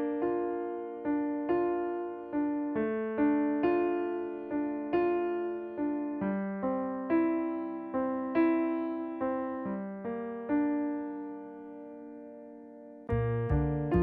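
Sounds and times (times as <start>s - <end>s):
slow solo piano: 0.0s - 14.0s.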